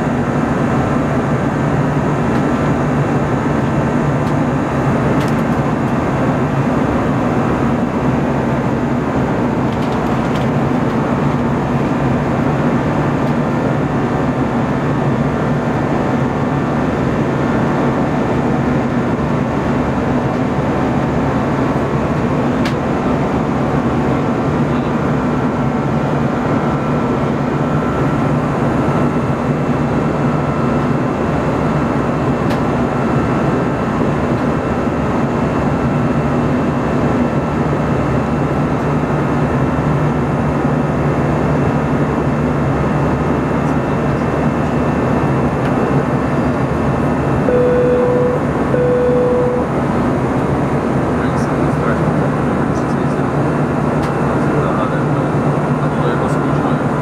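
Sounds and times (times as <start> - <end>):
jet engine cabin roar: 0.0 - 57.0
faint steady whine: 41.2 - 57.0.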